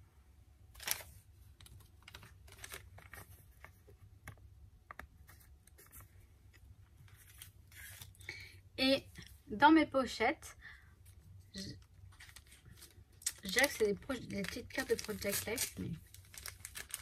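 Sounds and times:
paper rustling: 0.8 - 4.0, 12.1 - 17.0.

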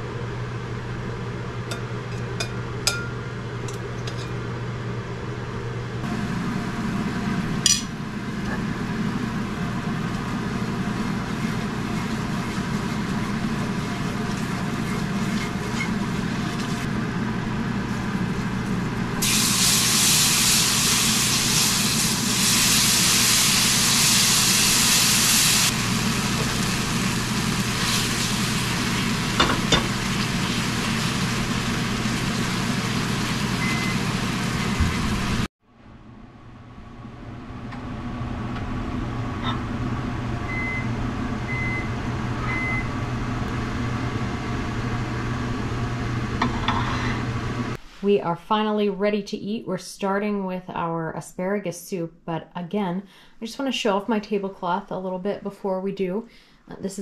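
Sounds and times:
gravy sizzling in skillet: 19.2 - 35.5.

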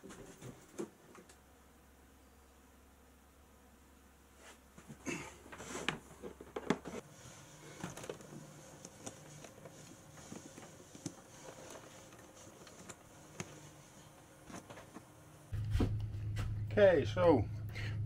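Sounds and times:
clicks and rustles of wires: 4.8 - 15.8
steady low hum: 7.0 - 18.0.

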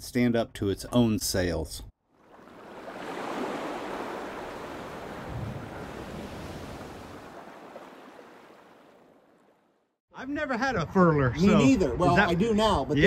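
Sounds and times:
waves surging: 2.2 - 9.8
wind rushing: 2.9 - 7.4.

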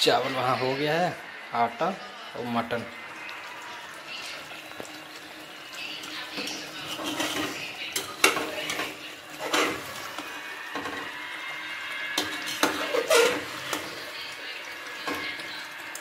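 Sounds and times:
steady sizzle: 0.0 - 16.0
metal ladle scraping a pot: 6.3 - 11.2, 12.0 - 14.1.

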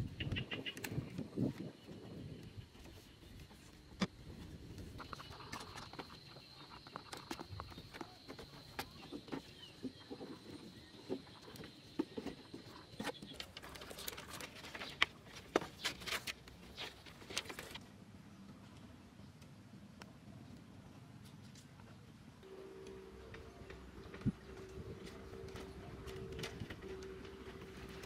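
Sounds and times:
faint steady high tone: 22.4 - 28.0.

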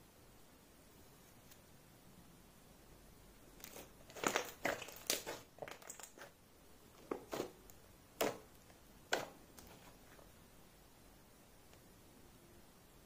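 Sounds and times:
slime squished by fingers: 3.6 - 6.3.

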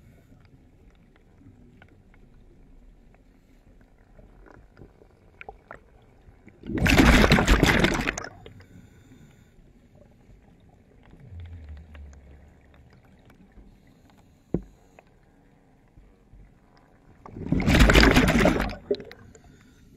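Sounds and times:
underwater rushing swirl: 6.7 - 8.3, 11.0 - 14.0, 17.2 - 19.2
low hum: 10.8 - 14.8
faint clicks: 10.8 - 17.0.

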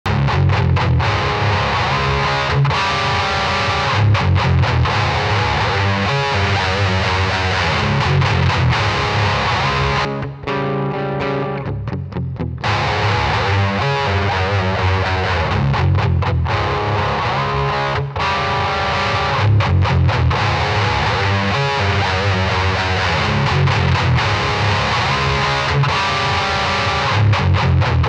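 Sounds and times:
distorted electric guitar riff: 0.0 - 28.0.

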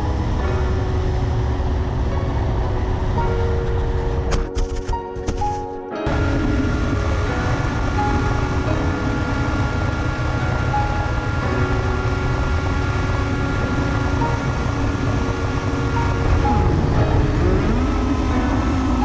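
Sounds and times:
quadcopter motors whining: 6.1 - 19.0.

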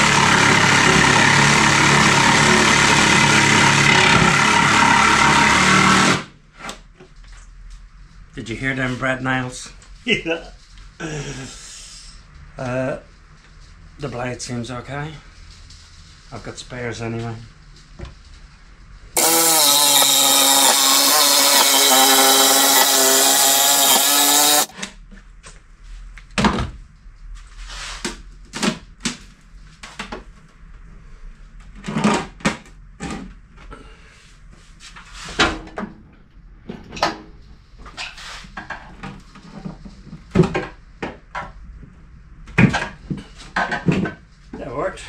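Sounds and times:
jigsaw whining: 0.0 - 6.3, 19.2 - 24.7.

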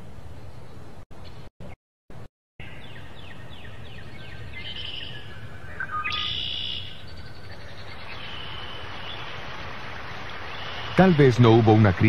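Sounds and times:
birds calling: 2.6 - 12.0
steady background hiss: 2.8 - 12.0.

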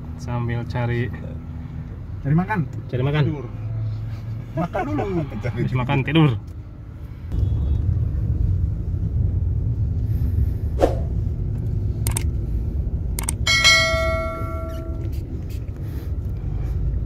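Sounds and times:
car engine and road noise: 0.0 - 17.0
short clicks: 12.1 - 12.3, 13.2 - 13.4
ringing chime: 13.5 - 15.1.

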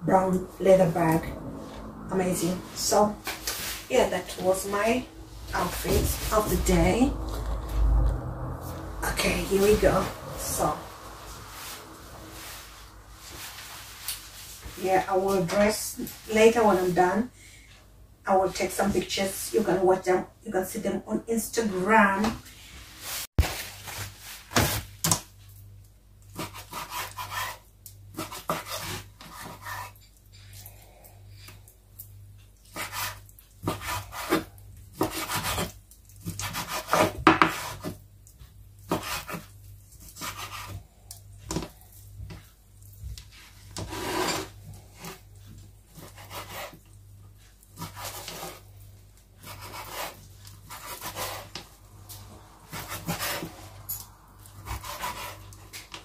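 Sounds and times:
rubbing and scraping on wood: 43.3 - 45.2.

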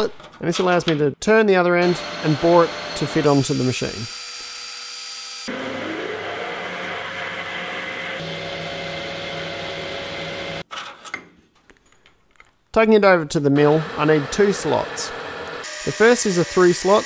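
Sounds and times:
metal lathe running: 1.8 - 4.3, 5.4 - 10.6, 13.6 - 17.0
tool cutting metal: 1.8 - 10.6, 13.6 - 17.0.

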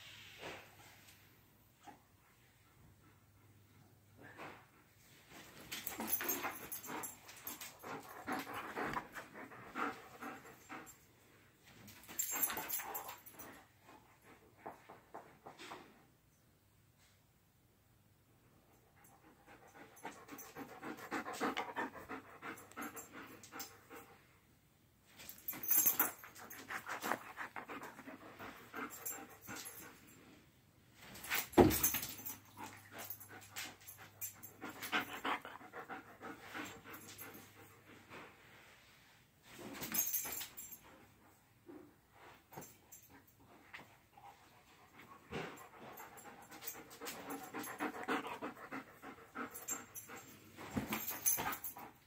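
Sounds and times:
dog panting: 5.8 - 11.1, 19.0 - 24.3, 25.7 - 30.2, 32.3 - 38.4, 43.0 - 52.0.

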